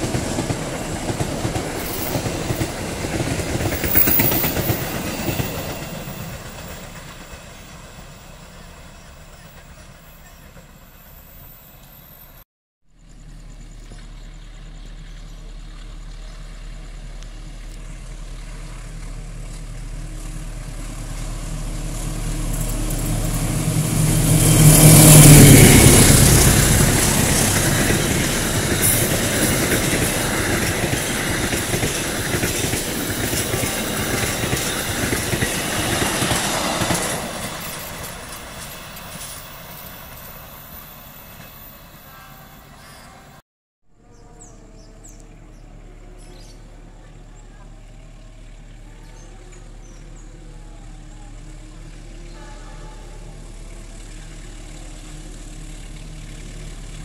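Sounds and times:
train wheels clattering: 0.0s - 8.2s, 18.8s - 41.7s
locomotive drone: 0.0s - 43.4s, 44.0s - 57.0s.

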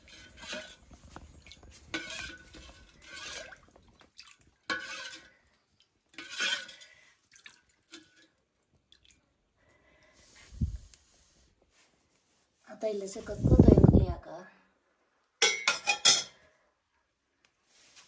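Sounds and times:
ladle scraping metal pot: 0.0s - 7.0s, 7.9s - 8.3s
ladle stirring liquid in pot: 0.0s - 9.4s
liquid splashing: 0.3s - 5.4s, 6.1s - 9.4s.

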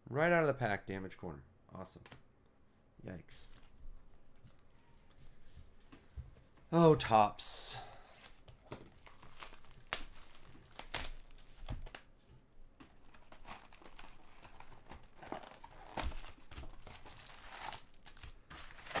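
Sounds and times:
packaging crinkling and tearing: 8.6s - 12.2s, 12.9s - 19.0s.

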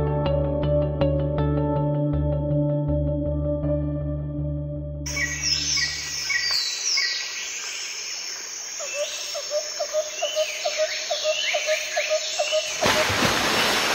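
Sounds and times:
birds calling: 5.1s - 13.9s.

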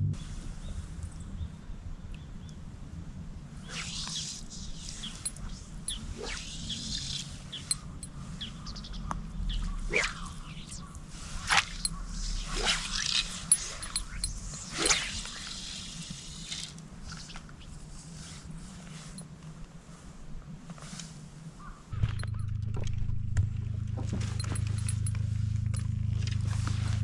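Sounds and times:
steady low rumble: 0.0s - 20.7s, 21.3s - 27.0s
fly line swishing through air: 3.6s - 8.7s, 9.5s - 19.3s.

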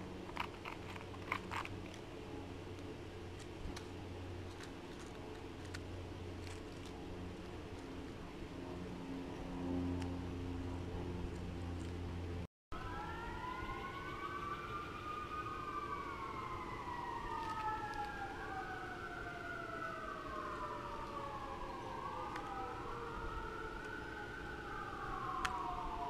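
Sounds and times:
sirens wailing: 7.8s - 26.0s.

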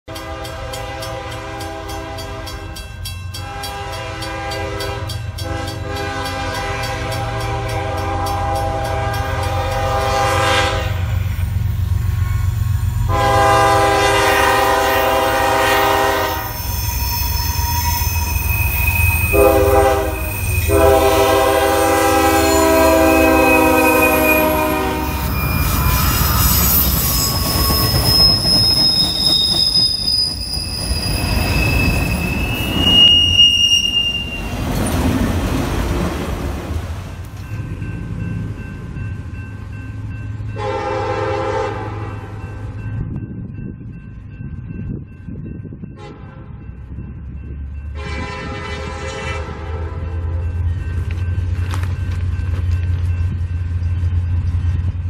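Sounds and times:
train air horn blasts: 0.1s - 2.8s, 3.4s - 11.3s, 12.1s - 28.2s, 40.6s - 42.4s, 46.0s - 46.6s, 48.0s - 50.4s
train wheels squealing: 15.8s - 21.2s, 21.8s - 35.3s.

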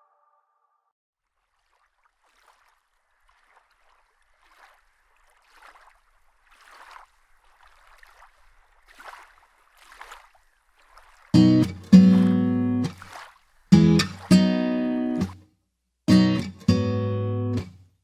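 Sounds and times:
lake waves lapping at shore: 1.2s - 15.4s.

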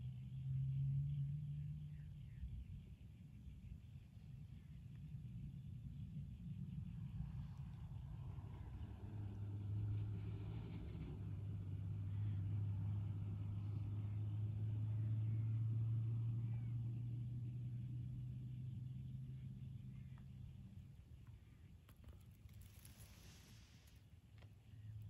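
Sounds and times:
motor vehicle engine passing: 6.6s - 21.0s.

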